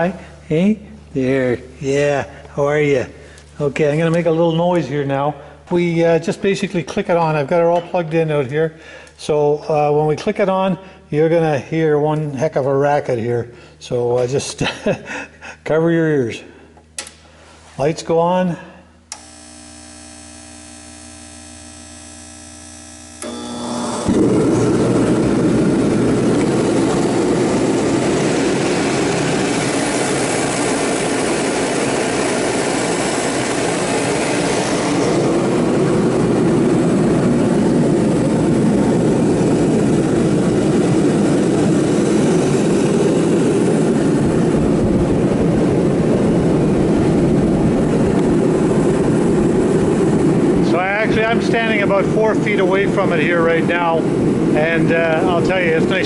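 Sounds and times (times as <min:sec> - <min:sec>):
forced-air heater roaring: 0:00.0 - 0:56.0
burner lighting: 0:19.0 - 0:56.0.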